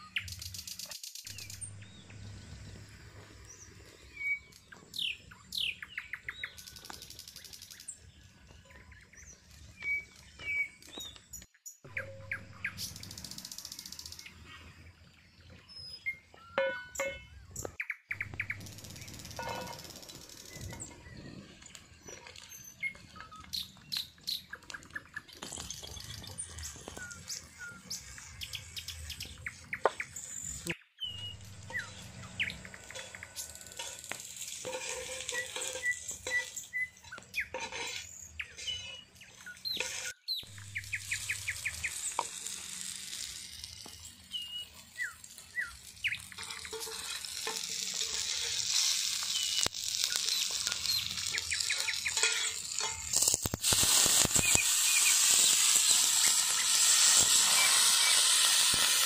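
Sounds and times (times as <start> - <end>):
small birds chirping: 0.0 - 58.5
food sizzling in oil: 18.2 - 22.9, 31.2 - 59.0
utensils clicking and scraping: 18.5 - 20.9, 31.3 - 44.4, 45.2 - 59.0.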